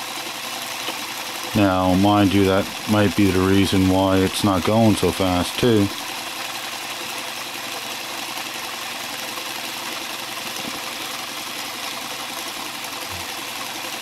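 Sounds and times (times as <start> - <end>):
electric motor whirring: 13.1 - 13.4.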